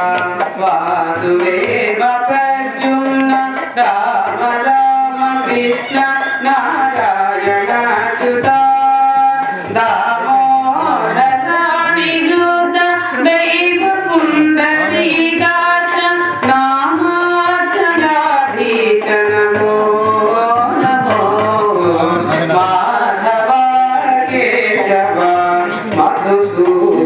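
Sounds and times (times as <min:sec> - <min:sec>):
hand drum: 0:00.0 - 0:27.0
man singing into a microphone: 0:13.3 - 0:15.6, 0:18.5 - 0:27.0.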